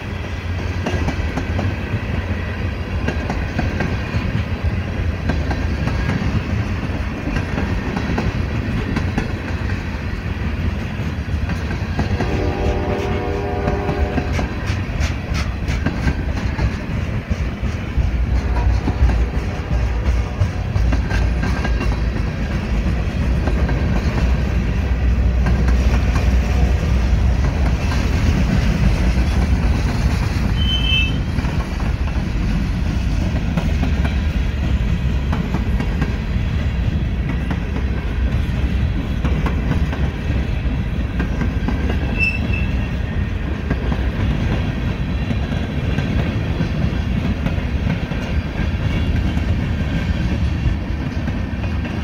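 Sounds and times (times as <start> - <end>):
freight train rumbling past: 0.0 - 52.0
high wheel squeals: 42.0 - 42.9.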